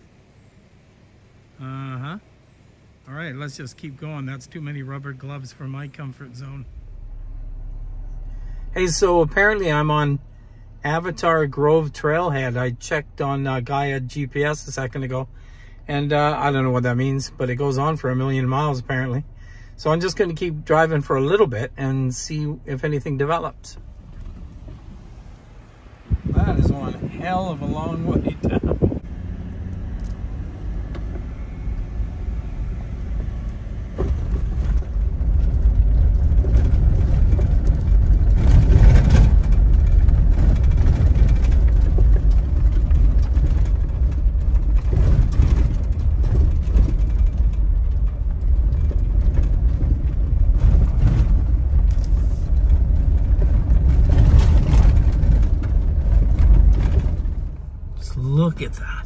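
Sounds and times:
engine and tyre rumble: 0.0s - 59.0s
gravel crunch: 29.8s - 59.0s.

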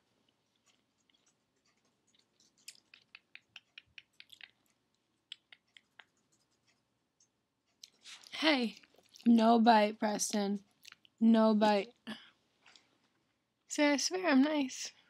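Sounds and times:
piglet mouth wet clicks: 2.6s - 4.6s, 5.3s - 6.2s.

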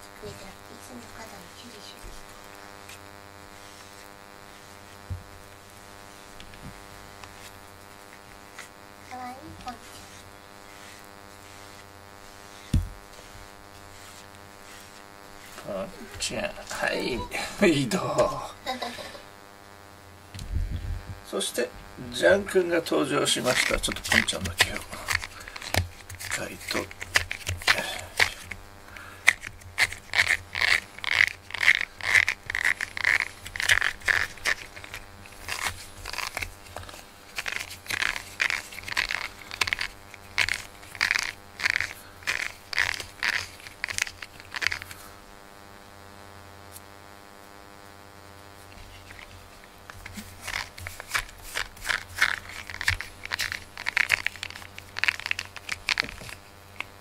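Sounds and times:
brush rustling through fur: 7.4s - 17.8s
fingers scraping hair off rubber brush: 9.6s - 18.4s, 23.2s - 45.1s, 48.6s - 57.0s.

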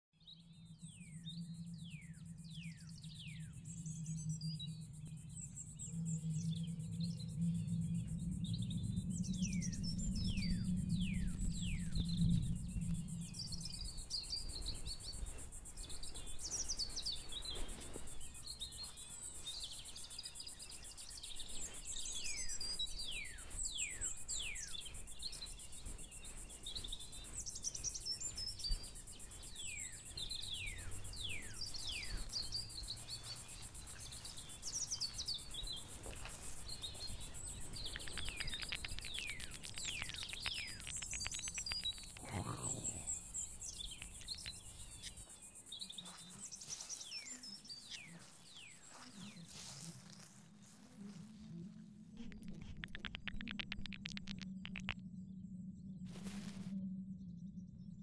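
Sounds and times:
birds chirping: 9.2s - 50.4s, 52.2s - 55.0s.

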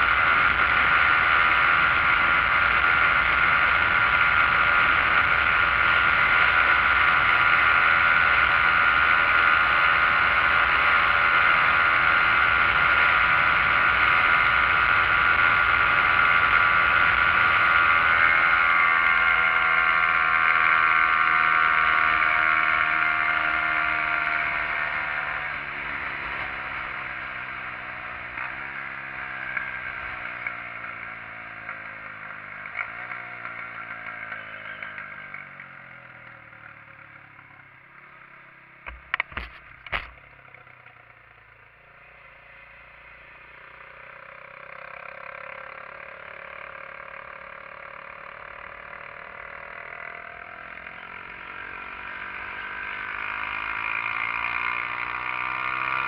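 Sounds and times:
rush of riding wind: 0.0s - 36.2s
motorcycle engine running: 0.0s - 56.0s.

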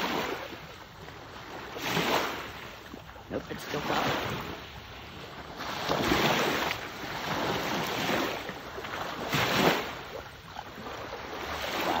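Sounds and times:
water sloshing around wading person: 0.0s - 12.0s.

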